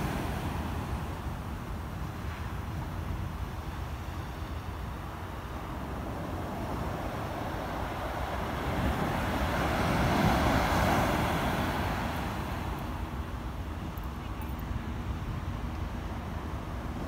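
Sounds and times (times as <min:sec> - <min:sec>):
wave breaking on beach: 0:00.0 - 0:01.7, 0:05.6 - 0:13.3
low rumble of the sea: 0:00.0 - 0:17.0.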